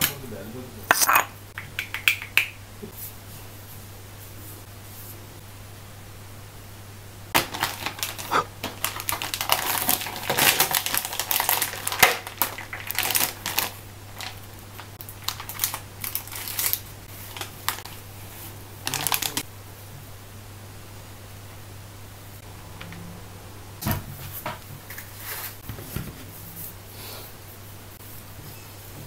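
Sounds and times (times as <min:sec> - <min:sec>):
plastic packaging crinkling: 0:07.4 - 0:18.1, 0:18.8 - 0:19.4.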